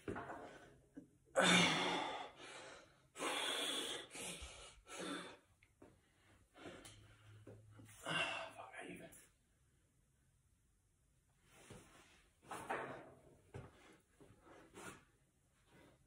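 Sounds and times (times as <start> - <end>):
man breathing hard: 1.4 - 5.5, 7.9 - 8.6.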